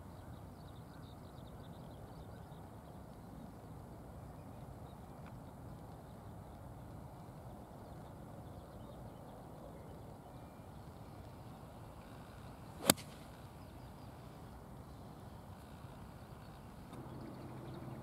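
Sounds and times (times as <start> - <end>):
golf club striking ball: 12.8 - 13.3
golf club swish: 12.8 - 13.4.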